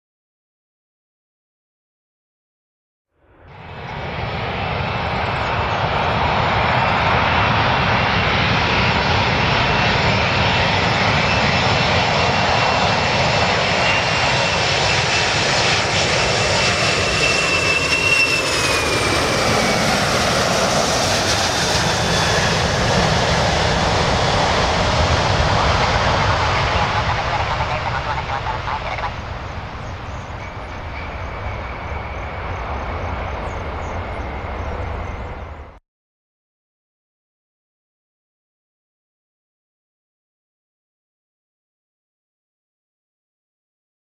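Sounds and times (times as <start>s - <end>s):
jet engines roaring: 3.4s - 35.8s
high jet whine falling in pitch: 12.9s - 35.8s.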